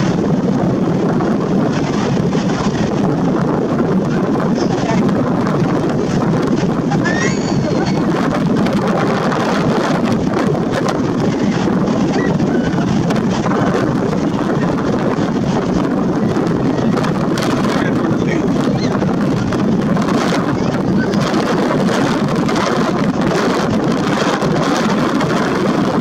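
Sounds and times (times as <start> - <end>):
wind on microphone: 0.0 - 26.0
crowd chatter: 6.9 - 9.2, 11.4 - 21.5.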